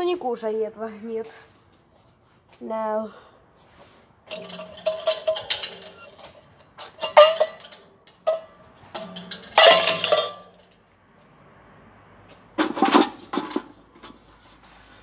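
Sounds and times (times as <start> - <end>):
objects clinking and clattering: 4.3 - 10.8.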